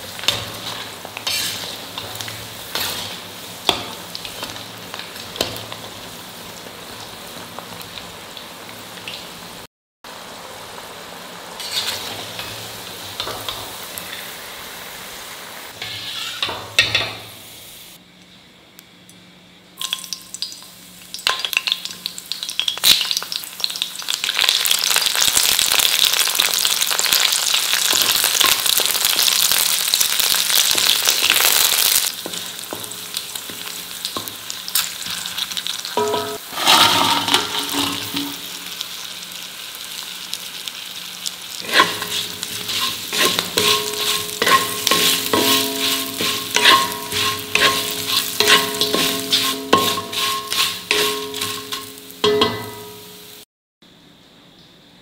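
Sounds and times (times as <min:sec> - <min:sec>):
garlic sizzling in hot oil: 0:00.0 - 0:18.0, 0:19.8 - 0:53.4
spatula scraping and tapping pan: 0:00.2 - 0:04.5, 0:11.6 - 0:12.6, 0:15.8 - 0:17.2, 0:36.0 - 0:38.5, 0:41.6 - 0:53.0
leaves spluttering in oil: 0:21.1 - 0:52.0.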